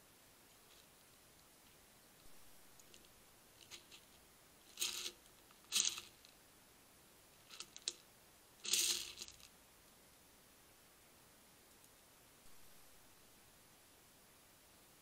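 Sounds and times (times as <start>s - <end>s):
hedgehogs jostling: 2.8s - 6.3s, 7.5s - 8.0s, 8.6s - 9.5s.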